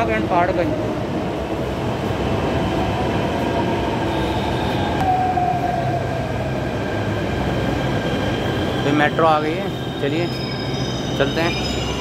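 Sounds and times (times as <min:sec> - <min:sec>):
electric train braking to a stop: 0:07.9 - 0:12.0.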